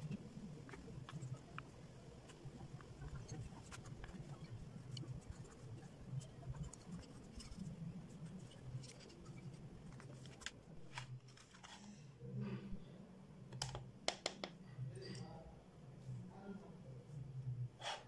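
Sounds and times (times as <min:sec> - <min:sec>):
low room hum: 0:00.0 - 0:18.0
pencil scratching on paper: 0:02.9 - 0:09.6
small clicks and taps: 0:13.5 - 0:14.6.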